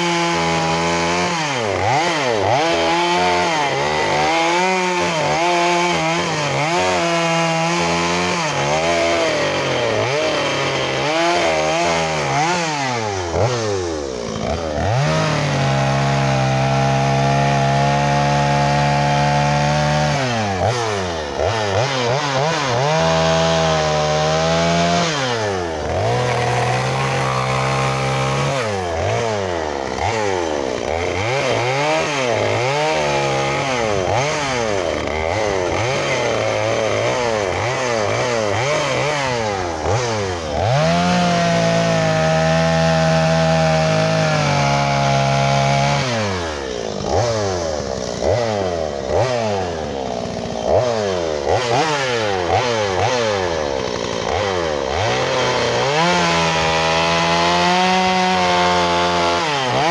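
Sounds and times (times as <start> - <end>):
chainsaw engine revving: 0.0 - 59.9.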